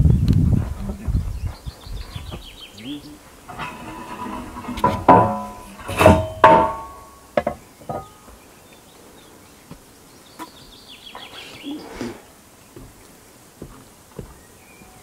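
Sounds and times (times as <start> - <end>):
loud ringing knocks on timber: 4.8 - 8.2.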